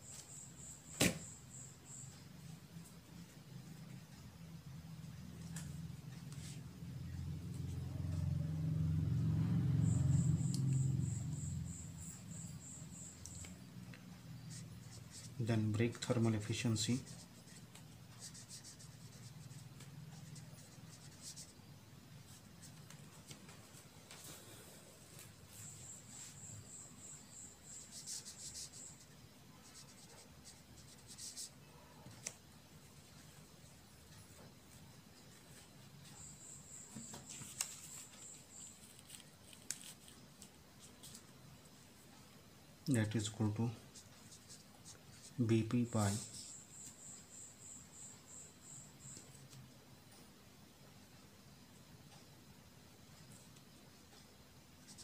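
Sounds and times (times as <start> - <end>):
pen scratching on paper: 16.8 - 21.6, 26.2 - 32.4.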